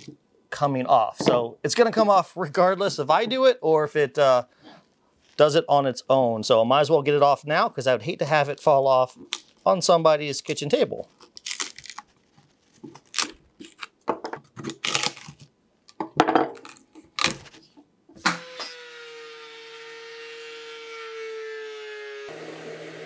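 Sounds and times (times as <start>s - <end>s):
bark cracking and snapping: 11.1s - 12.1s, 16.6s - 17.6s
orbital sander humming: 18.4s - 23.0s.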